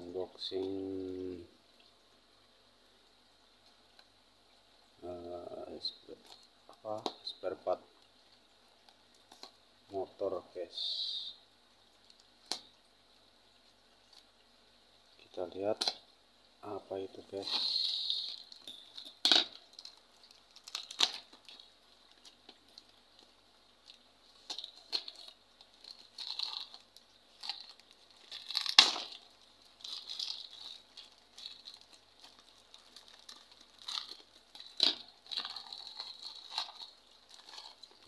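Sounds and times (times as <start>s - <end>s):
plastic bag tearing and crinkling: 17.4s - 23.3s, 23.9s - 38.0s
scissors cutting plastic bag: 32.5s - 38.0s.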